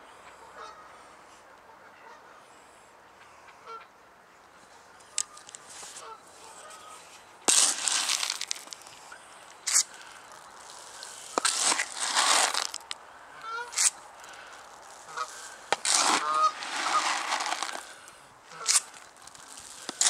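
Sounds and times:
geese honking: 0.4s - 1.1s, 3.6s - 3.9s, 5.1s - 8.5s, 9.1s - 20.0s
noisy crunching: 5.0s - 20.0s.

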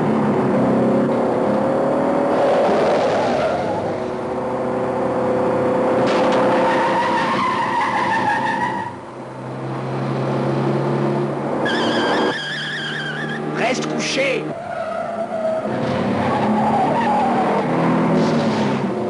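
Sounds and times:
engines running hard: 0.0s - 19.0s
tyres squealing: 11.6s - 17.5s.

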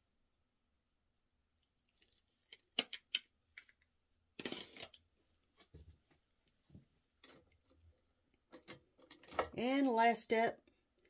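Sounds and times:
small items clicking and tapping: 2.0s - 5.0s.

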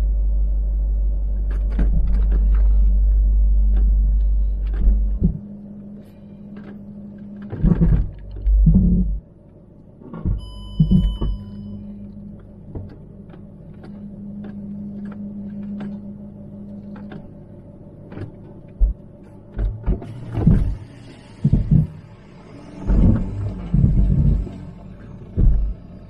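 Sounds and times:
diesel engine low hum: 0.0s - 26.0s
heavy suspension thumps: 4.7s - 5.4s, 22.9s - 24.6s, 25.4s - 25.9s.

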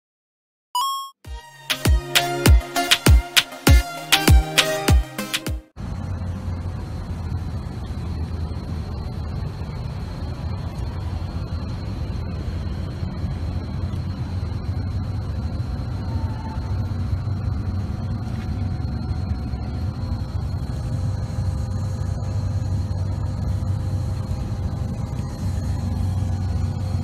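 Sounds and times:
faint steady whine: 5.8s - 27.0s
large vehicle engine idling: 5.8s - 27.0s.

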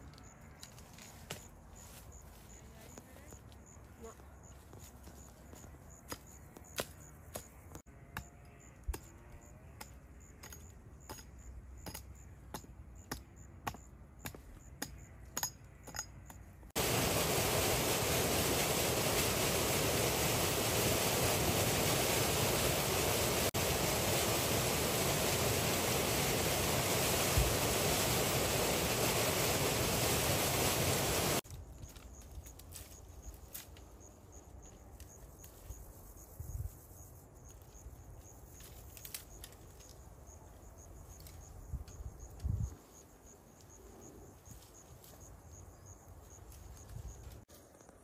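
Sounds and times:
fast stream rushing: 16.8s - 31.4s.

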